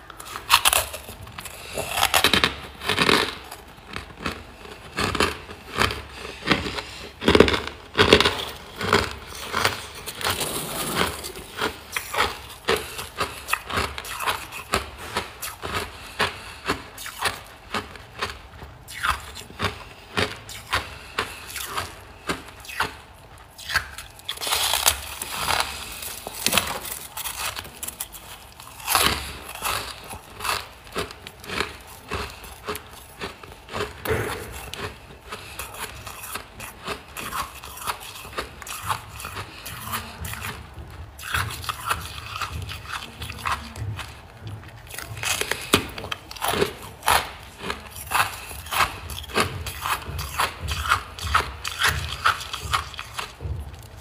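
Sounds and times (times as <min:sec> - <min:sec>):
chewing crunchy frost: 0:00.0 - 0:54.0.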